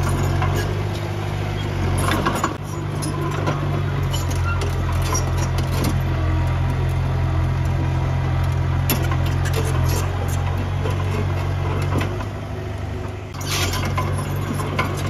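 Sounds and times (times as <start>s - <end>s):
short clanks and rattles: 0.0s - 6.0s, 8.8s - 12.4s, 13.3s - 15.0s
diesel engine running: 0.0s - 15.0s.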